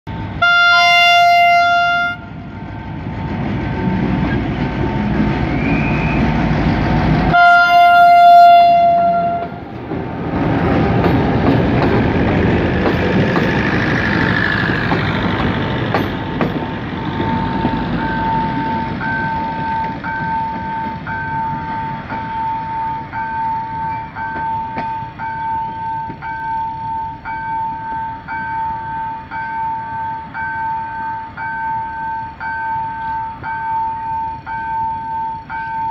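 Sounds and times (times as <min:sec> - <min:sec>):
locomotive engine rumbling: 0:00.1 - 0:35.9
train wheel noise: 0:00.1 - 0:35.9
locomotive horn: 0:00.3 - 0:02.9, 0:07.3 - 0:09.7.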